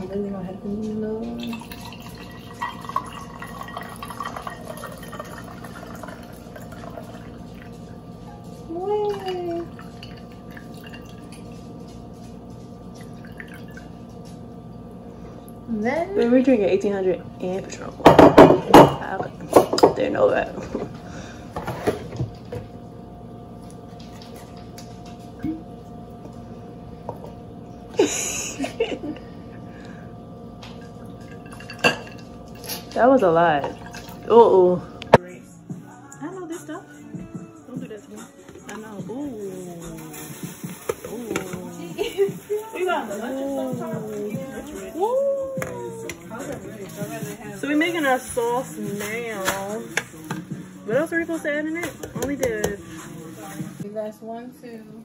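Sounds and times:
steady background hum: 0:00.0 - 0:55.0
liquid pouring over ice cubes: 0:01.5 - 0:07.8.

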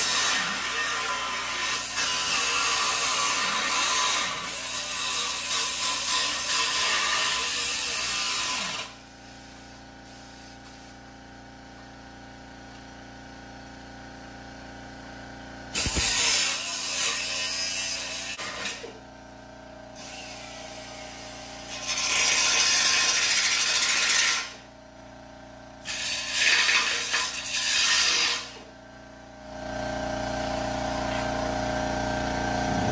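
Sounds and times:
grinder cutting metal plate: 0:00.0 - 0:09.0, 0:15.7 - 0:19.0, 0:20.0 - 0:24.7, 0:25.8 - 0:28.7.

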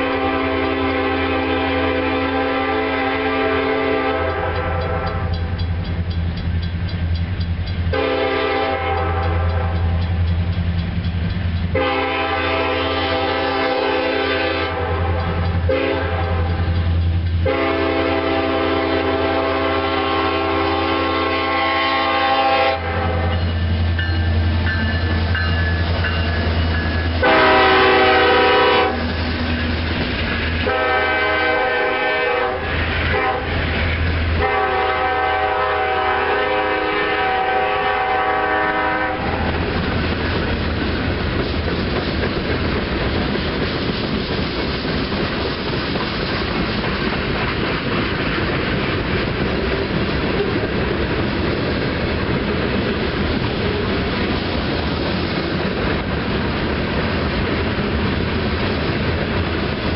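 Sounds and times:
locomotive air horn blasts: 0:00.0 - 0:05.4, 0:07.9 - 0:09.9, 0:11.7 - 0:16.7, 0:17.4 - 0:23.5, 0:27.2 - 0:29.2, 0:30.6 - 0:33.6, 0:34.4 - 0:39.6
diesel locomotive rumble: 0:00.0 - 0:59.9
train wheels clacking on rails: 0:00.0 - 0:59.9.

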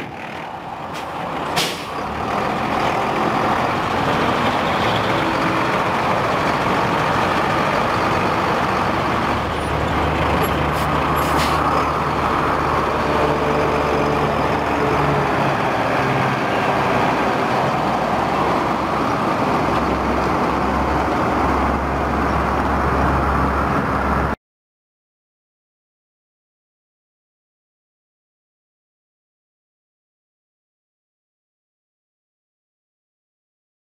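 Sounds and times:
truck diesel engine running: 0:00.0 - 0:24.3
truck pulling away: 0:00.0 - 0:24.4.

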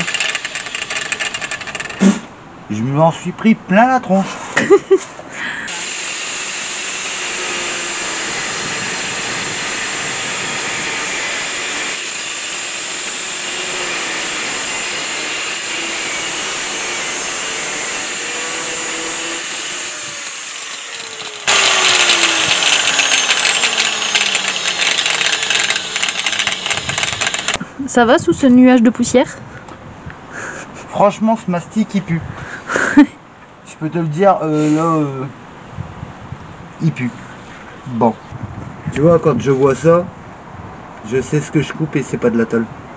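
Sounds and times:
angle grinder cutting: 0:00.0 - 0:02.0, 0:05.7 - 0:27.6.

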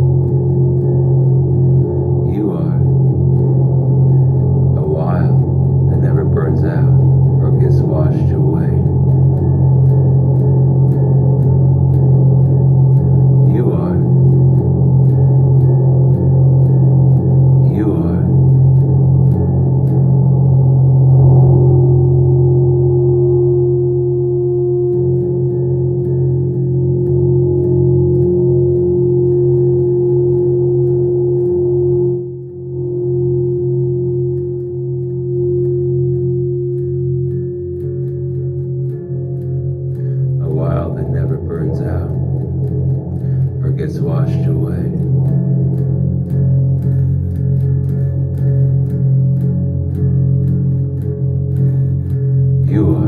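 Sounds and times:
ambient musical drone: 0:00.0 - 0:53.0
sustained low notes: 0:00.0 - 0:53.0
guitar strumming: 0:21.6 - 0:53.0.

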